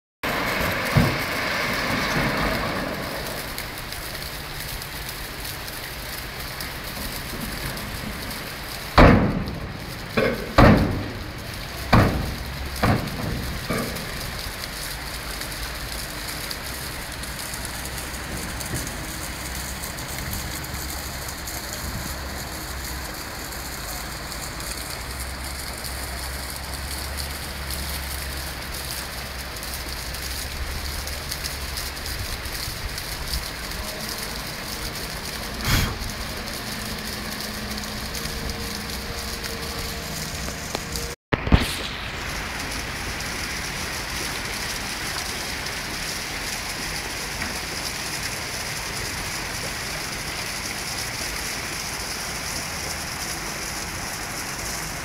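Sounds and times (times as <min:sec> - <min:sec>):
river water rushing over stones: 0:00.2 - 0:55.0
heavy knocks: 0:09.0 - 0:11.2
low drone: 0:33.7 - 0:43.8.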